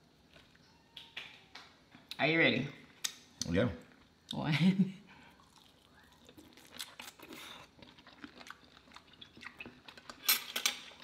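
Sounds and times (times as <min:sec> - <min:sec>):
chewing crispy fried food: 0:05.2 - 0:11.0.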